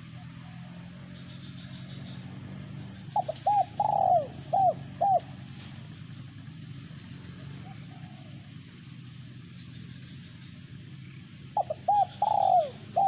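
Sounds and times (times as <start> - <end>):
dove cooing: 3.0 - 5.5, 7.4 - 8.5, 11.5 - 13.0.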